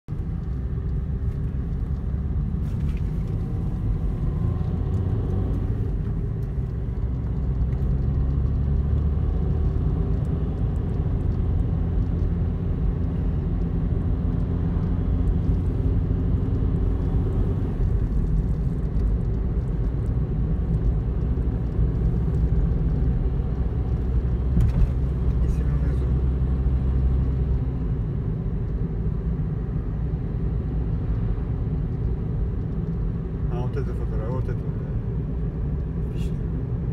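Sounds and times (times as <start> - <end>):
car engine and tyre rumble: 0.0 - 36.9.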